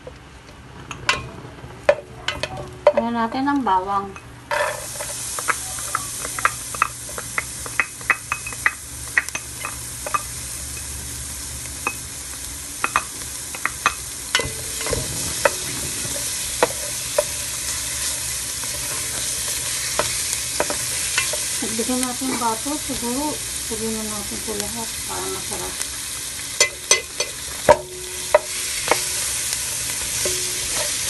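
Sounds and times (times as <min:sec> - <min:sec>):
garlic sizzling in butter: 0:04.5 - 0:31.0
spoon scraping metal pot: 0:30.1 - 0:31.0.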